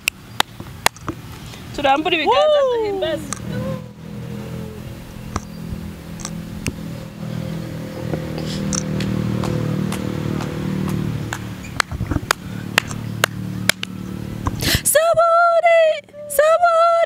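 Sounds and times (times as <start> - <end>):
steady low hum: 2.7 - 16.3
hand claps: 9.0 - 14.0.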